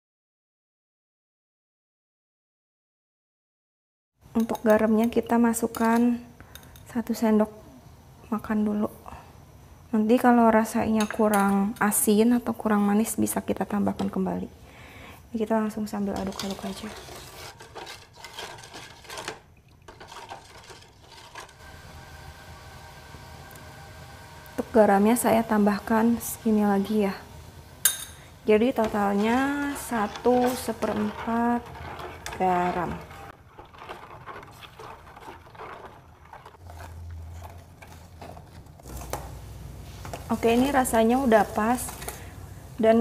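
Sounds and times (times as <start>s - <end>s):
ladle scraping and clinking pot: 16.0s - 21.6s, 27.8s - 39.3s
liquid bubbling: 29.0s - 38.2s.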